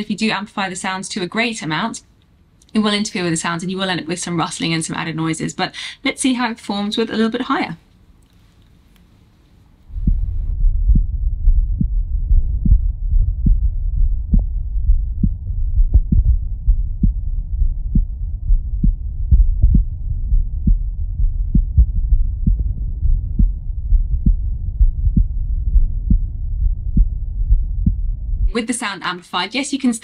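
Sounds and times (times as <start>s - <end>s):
background rustling: 7.8s - 10.2s
low rumble: 9.8s - 28.7s
heartbeat thuds: 9.9s - 28.6s.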